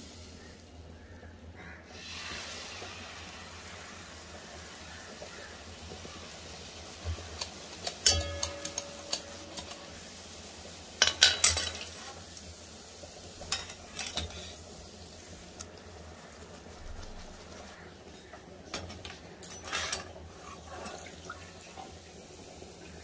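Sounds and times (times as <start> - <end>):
oil sizzling in a wok: 0.0 - 23.0
metal utensils clinking on pan: 7.1 - 10.0, 11.0 - 12.2, 13.4 - 14.6, 18.1 - 21.0.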